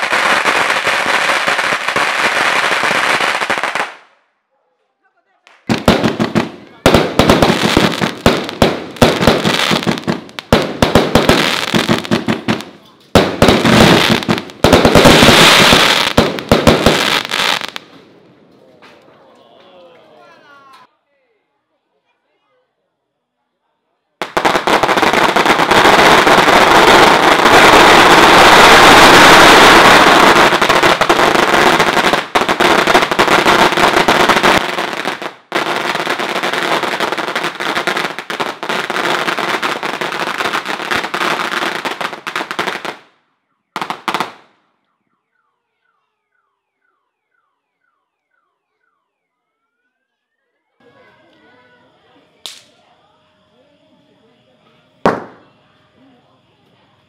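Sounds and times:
firecrackers crackling: 0.0 - 4.4, 5.2 - 19.3, 24.2 - 44.8, 52.0 - 52.9, 54.9 - 55.6.

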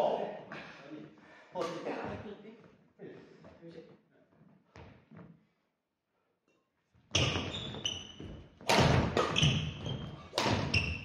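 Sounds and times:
shoes squeaking: 7.1 - 11.0
racket hitting shuttlecock: 8.6 - 11.0.

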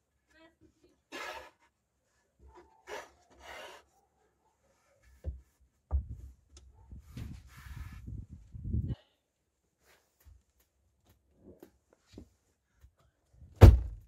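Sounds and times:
carpet rubbing against wood: 7.0 - 8.3.

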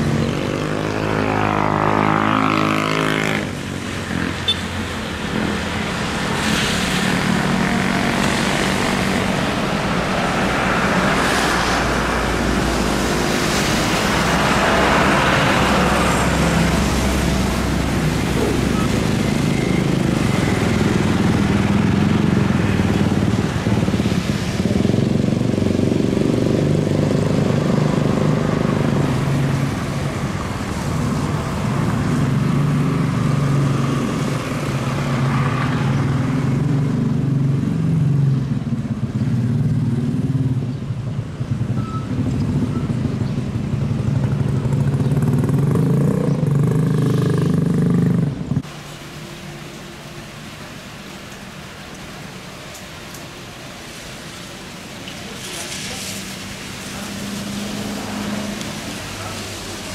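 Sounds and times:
jet engines rumbling: 3.3 - 37.4.

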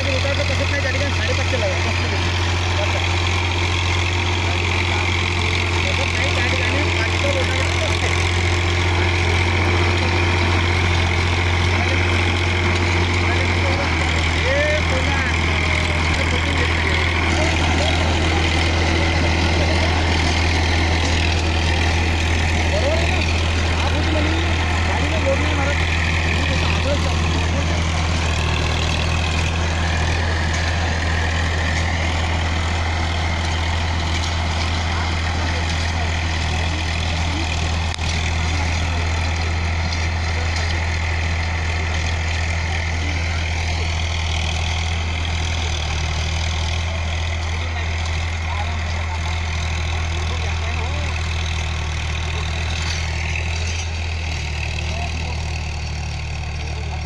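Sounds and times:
tractor diesel engine droning: 0.0 - 57.0.

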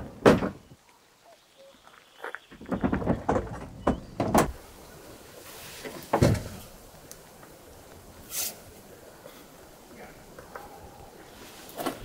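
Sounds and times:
heavy thump: 6.1 - 6.6.

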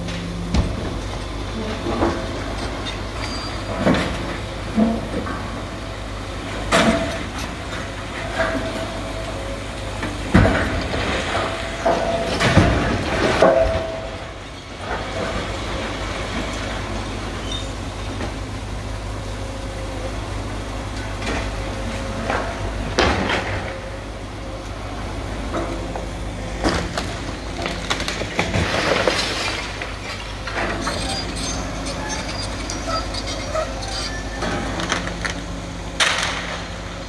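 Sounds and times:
excavator engine running: 0.0 - 37.0
concrete and masonry crashing: 26.8 - 32.2
metallic squeals: 30.7 - 34.7.

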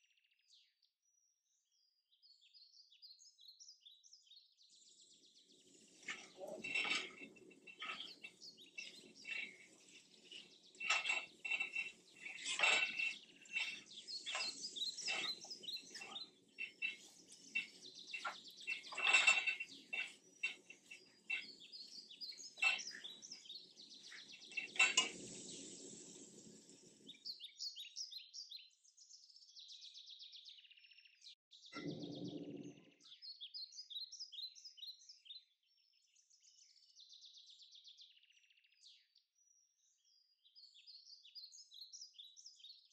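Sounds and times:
birds chirping: 4.7 - 28.5, 31.6 - 34.9
plastic spatula scraping a wok: 5.7 - 26.3.

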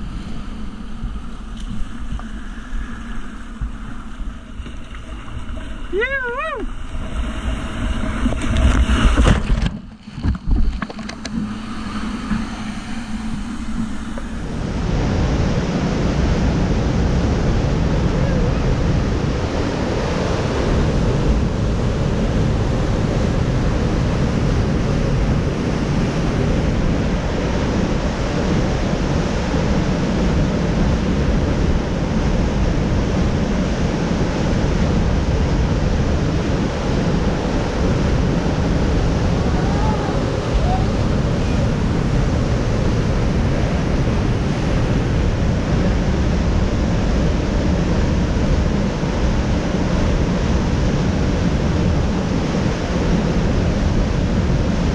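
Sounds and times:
wind on microphone: 0.0 - 54.9
waterfall rushing: 38.2 - 45.7.

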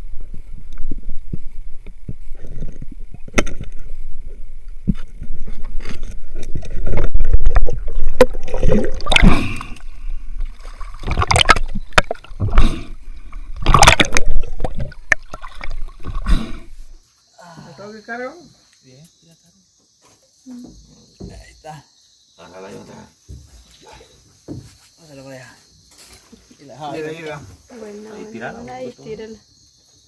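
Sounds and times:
water splashing and bubbling: 0.8 - 17.0.

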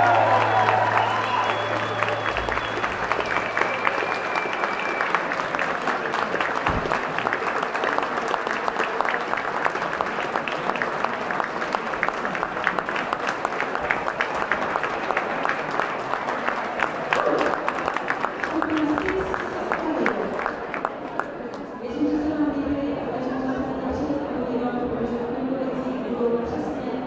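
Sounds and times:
music: 0.0 - 4.8
audience applauding: 0.0 - 21.7
voices in crowd: 0.0 - 27.0.

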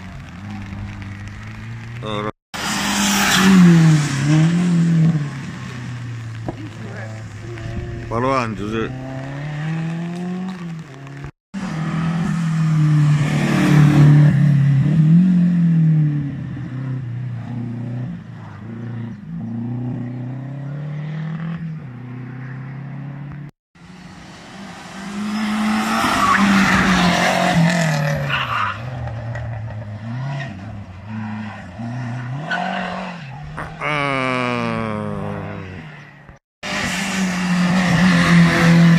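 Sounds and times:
tyre noise on tarmac: 0.0 - 11.8
race car engines passing: 0.0 - 38.9.

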